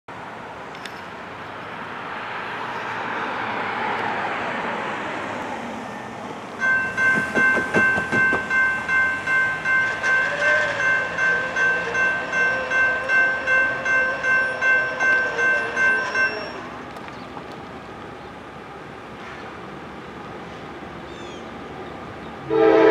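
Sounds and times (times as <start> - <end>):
road vehicle passing: 0.2 - 15.8
crossing warning bell ringing: 5.8 - 16.9.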